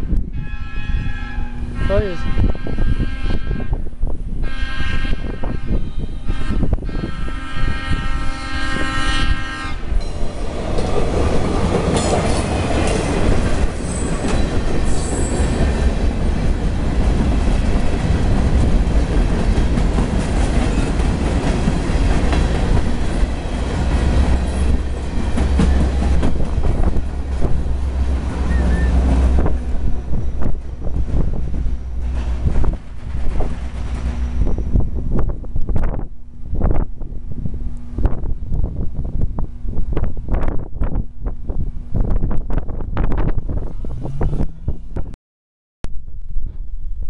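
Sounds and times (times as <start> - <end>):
train horn: 0.0 - 9.9, 28.4 - 29.5
freight train rumbling: 0.0 - 45.2.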